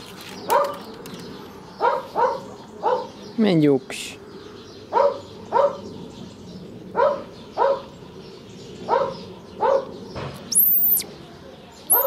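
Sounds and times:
dog barking: 1.8 - 3.2, 4.9 - 5.9, 7.0 - 7.9, 8.9 - 9.9
high thin whistling note: 10.5 - 11.0.

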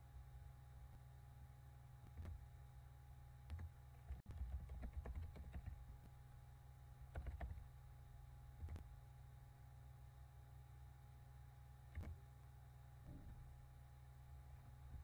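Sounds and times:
low electrical hum: 0.0 - 15.0
computer keyboard typing: 3.5 - 5.8, 7.1 - 7.6.

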